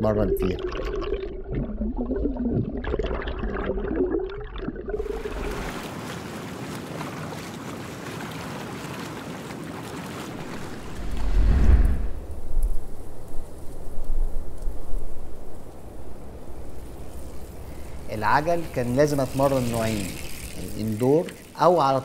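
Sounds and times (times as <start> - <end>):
underwater bubbling and swishing: 0.2 - 6.6, 9.6 - 21.8
wind and sea water wash: 4.9 - 22.0.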